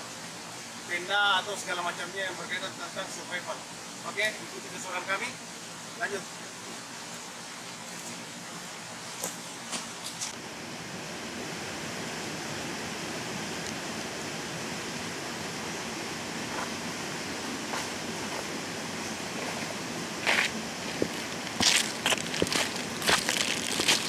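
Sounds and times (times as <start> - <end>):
forest background rushing: 0.0 - 24.0
footstep crunching dry leaves: 17.6 - 24.0.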